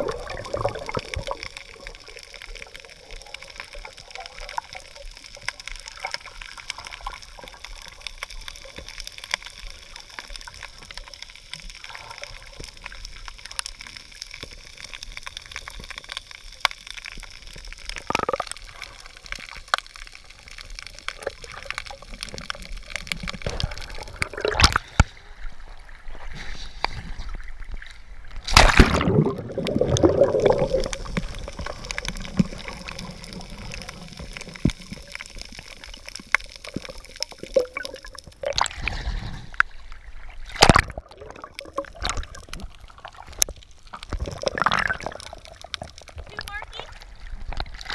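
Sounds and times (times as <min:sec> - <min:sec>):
bubbles gurgling: 0:00.0 - 0:08.0, 0:17.8 - 0:19.2, 0:21.0 - 0:25.0, 0:28.5 - 0:39.3, 0:40.4 - 0:47.9
underwater crackle of clicks: 0:00.0 - 0:25.2, 0:26.7 - 0:47.9.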